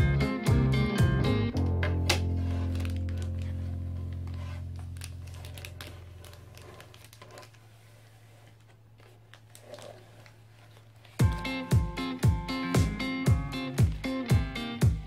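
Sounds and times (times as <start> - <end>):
background music: 0.0 - 4.8, 11.2 - 15.0
plastic bag crinkling: 2.4 - 11.3.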